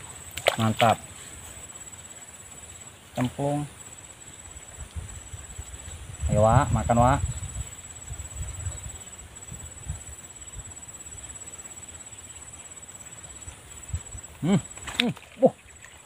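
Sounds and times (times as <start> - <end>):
insect trilling: 0.0 - 16.0
short vocal sounds: 14.4 - 15.6.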